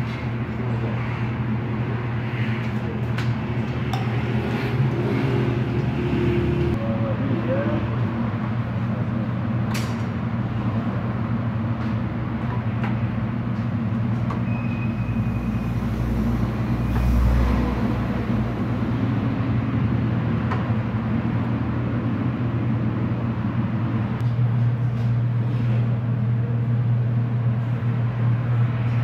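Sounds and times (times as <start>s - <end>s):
low motor hum: 0.0s - 9.6s.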